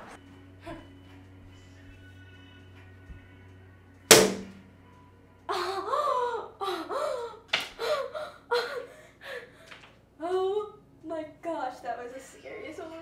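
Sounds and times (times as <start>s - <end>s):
hard slap: 4.1s - 4.7s.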